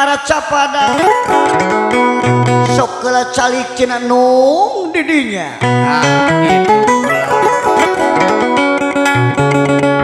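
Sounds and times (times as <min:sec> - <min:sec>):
plucked zither melody: 0:00.9 - 0:02.8, 0:05.6 - 0:10.0.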